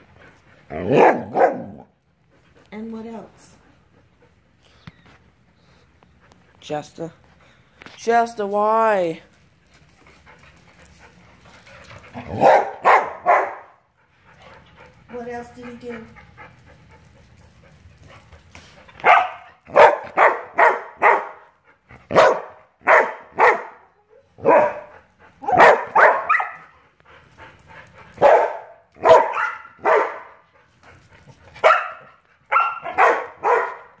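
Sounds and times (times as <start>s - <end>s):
dog barking: 0.8s - 1.9s, 12.3s - 13.8s, 19.0s - 21.4s, 22.1s - 26.7s, 28.2s - 30.4s, 31.6s - 34.0s.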